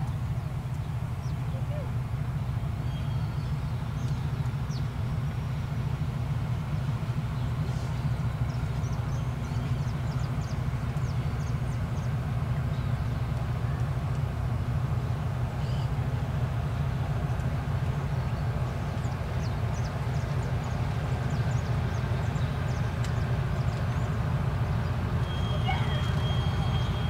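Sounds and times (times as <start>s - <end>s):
boat diesel engine drone: 0.0s - 27.0s.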